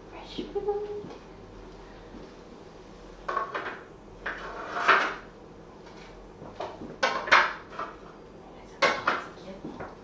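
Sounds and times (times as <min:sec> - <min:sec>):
dishes clinking and knocking: 0:03.3 - 0:05.3, 0:06.6 - 0:08.0, 0:08.8 - 0:09.9.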